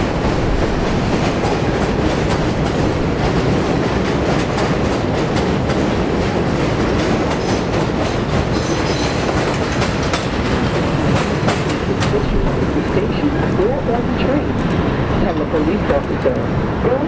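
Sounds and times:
wheels clattering over rail joints: 0:00.0 - 0:12.8
subway train rumbling past: 0:00.0 - 0:17.0.

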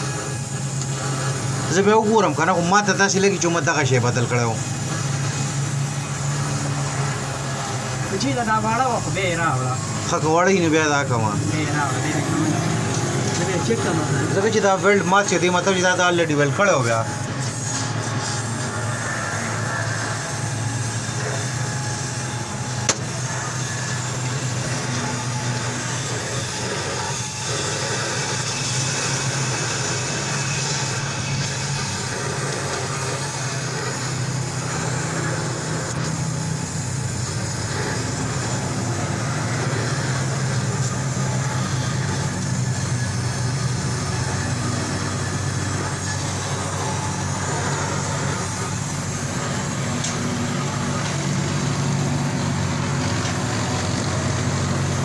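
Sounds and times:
low mechanical hum: 0:00.0 - 0:55.0
welding torch flame hissing: 0:00.0 - 0:55.0
sharp click: 0:22.9 - 0:23.1.

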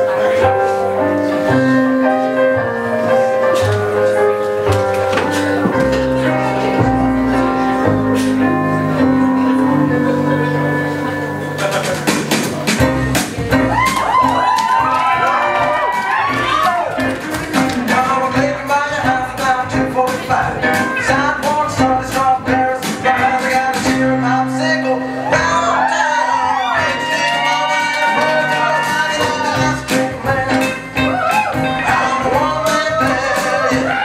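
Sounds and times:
steady music beat: 0:11.4 - 0:24.2
person singing: 0:15.5 - 0:34.0.

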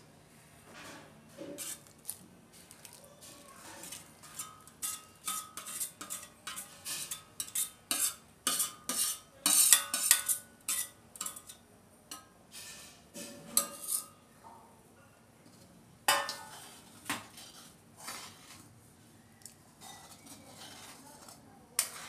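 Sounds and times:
spoon scraping steel cookware: 0:00.8 - 0:01.9, 0:03.3 - 0:14.2, 0:16.1 - 0:18.7, 0:19.8 - 0:22.0.

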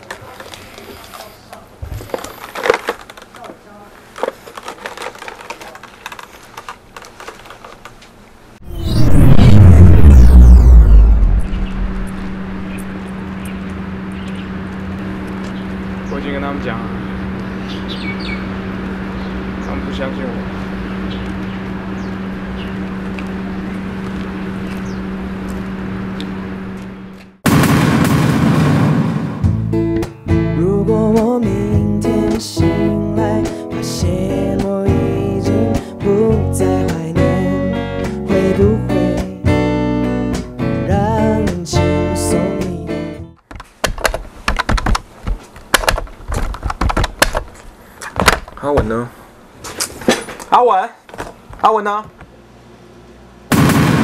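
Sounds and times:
handling clicks and knocks: 0:01.9 - 0:08.1, 0:43.4 - 0:49.0
loud noisy burst: 0:08.6 - 0:13.4
steady low hum: 0:08.6 - 0:27.4
traffic-like rumble: 0:08.6 - 0:27.4.

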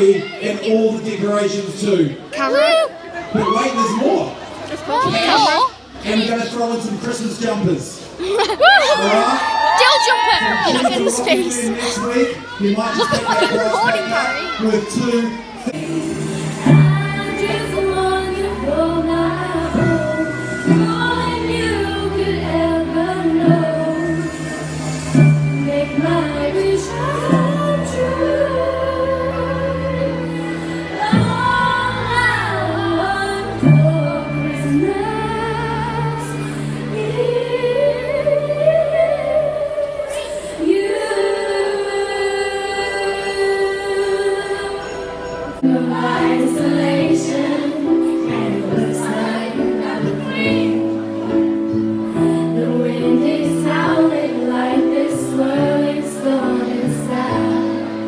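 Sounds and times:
woman singing into microphone: 0:10.1 - 0:11.8, 0:15.8 - 0:24.6, 0:25.2 - 0:51.0, 0:52.0 - 0:58.0
amplified backing music: 0:15.6 - 0:58.0.

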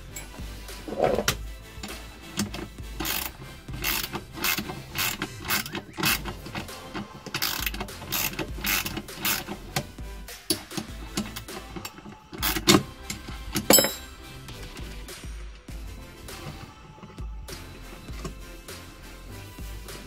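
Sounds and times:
metal ratchet clicking: 0:01.8 - 0:14.2.

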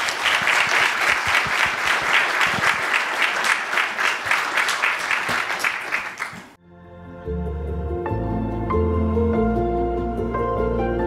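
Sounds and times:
audience applauding: 0:00.0 - 0:06.6
soft music: 0:06.6 - 0:11.0.

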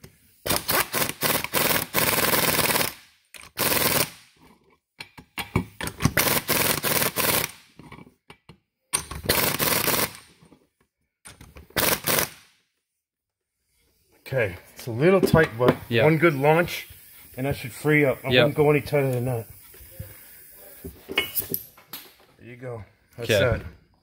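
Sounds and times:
pneumatic impact wrench hammering: 0:00.0 - 0:04.2, 0:05.1 - 0:07.9, 0:09.0 - 0:10.4, 0:11.3 - 0:12.4.

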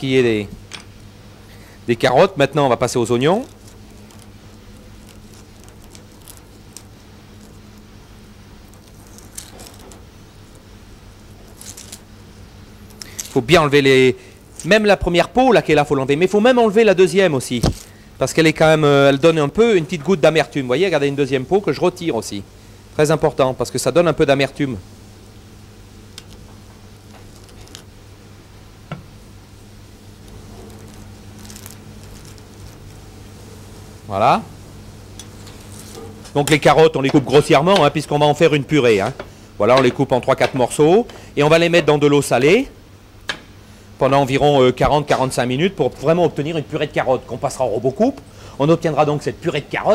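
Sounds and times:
steady low hum: 0:00.0 - 0:49.9
onion skin crackling: 0:02.0 - 0:16.3, 0:17.0 - 0:18.6, 0:26.1 - 0:28.0, 0:29.5 - 0:34.2, 0:35.1 - 0:41.0.

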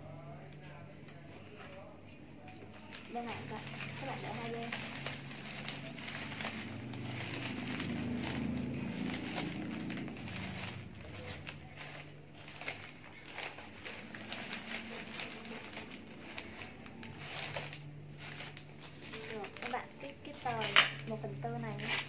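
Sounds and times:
wrapping paper crinkling: 0:02.4 - 0:22.0.

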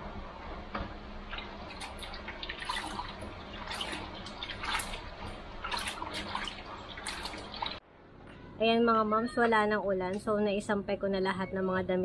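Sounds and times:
water sloshing in a plastic basin: 0:01.3 - 0:07.8.

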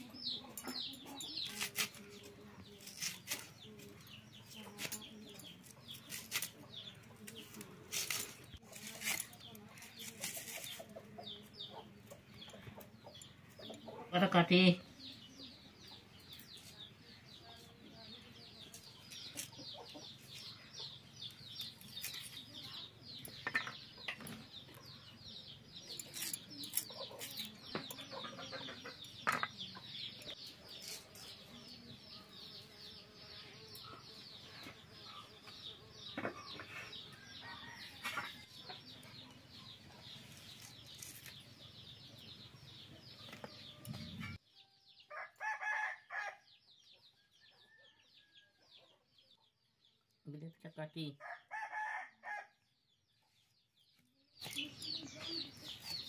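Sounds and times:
chickens clucking: 0:00.0 - 0:15.2, 0:18.5 - 0:32.7, 0:33.4 - 0:44.4
small birds chirping: 0:00.0 - 0:56.0.

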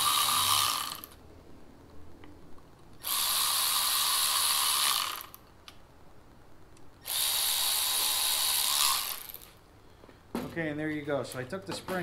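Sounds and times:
cordless electric ratchet running: 0:00.0 - 0:01.2, 0:03.0 - 0:05.4, 0:07.0 - 0:09.5.

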